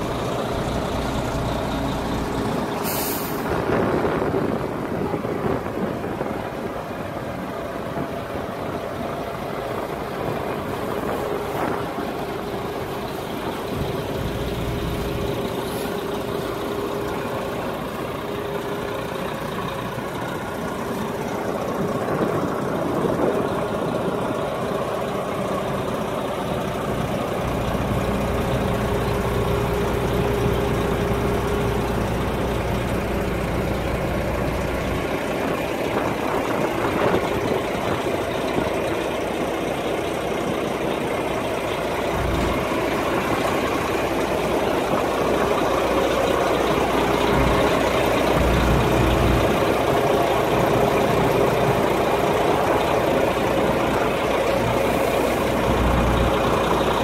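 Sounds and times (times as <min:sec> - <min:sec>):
diesel engine idling: 0:00.0 - 0:57.0.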